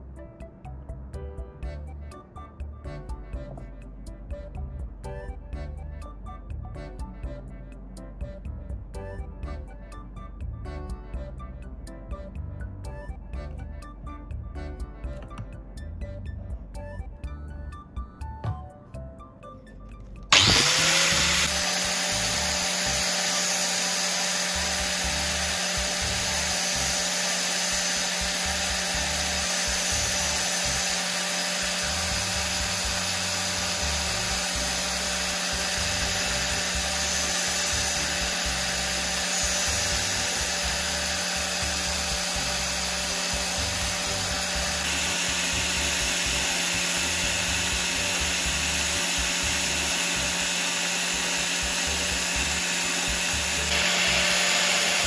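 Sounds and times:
angle grinder whining: 0:20.3 - 0:55.0
drill bit against spinning disc: 0:20.3 - 0:55.0.

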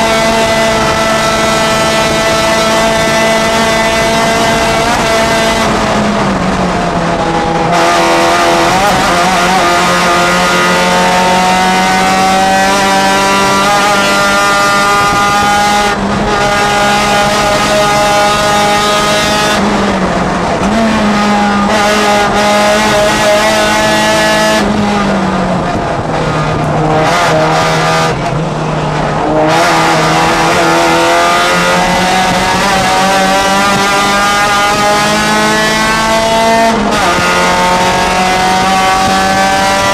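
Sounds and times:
race car engine under load: 0:00.0 - 0:39.9.

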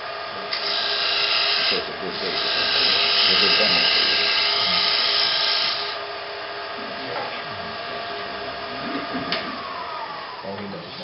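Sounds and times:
gouge shaving wood on a lathe: 0:00.0 - 0:06.0
lathe humming: 0:00.0 - 0:11.0.

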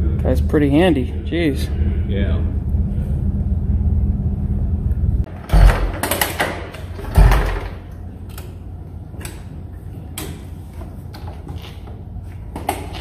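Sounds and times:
motorcycle kick starter thump: 0:05.4 - 0:07.8.

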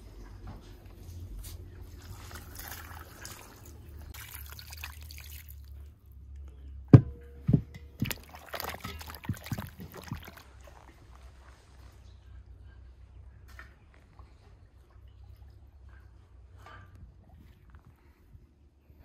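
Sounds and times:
water pouring and splashing: 0:01.8 - 0:06.0, 0:08.0 - 0:11.7.

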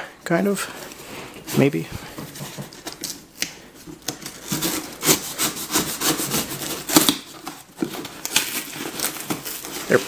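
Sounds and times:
blade sawing through cardboard: 0:04.4 - 0:07.3.

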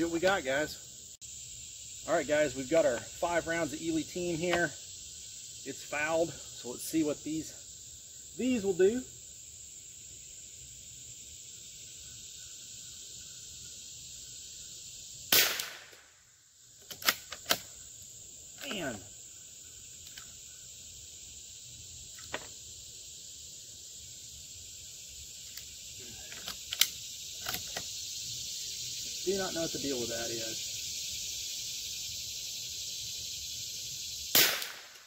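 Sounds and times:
insects chirring: 0:00.0 - 0:35.0
rifle shot: 0:15.3 - 0:16.1, 0:34.3 - 0:35.0.

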